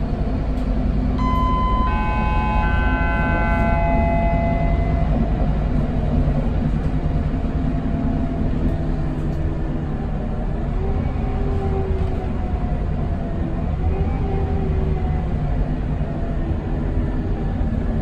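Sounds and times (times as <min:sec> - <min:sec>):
bus diesel engine rumble: 0:00.0 - 0:18.0
high steady tones: 0:01.2 - 0:05.8.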